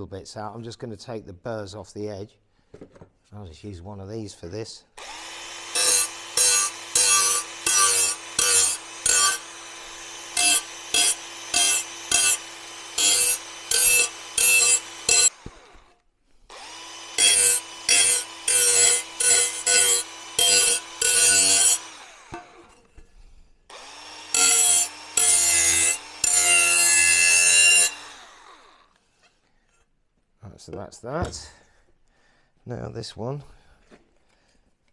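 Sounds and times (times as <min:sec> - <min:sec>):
small power tool deburring metal: 0:05.0 - 0:23.1, 0:23.7 - 0:29.0.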